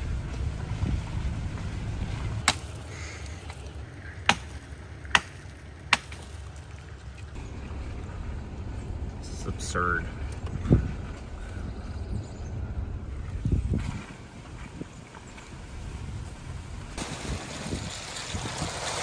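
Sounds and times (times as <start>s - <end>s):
hatchet chopping wood: 2.4s - 2.8s, 4.3s - 6.4s.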